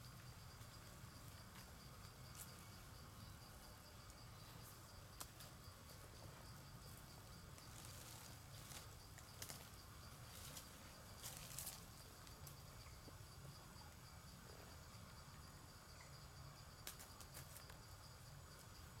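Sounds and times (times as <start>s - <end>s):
insects chirping: 0.0s - 19.0s
dry leaves rustling: 7.6s - 12.5s.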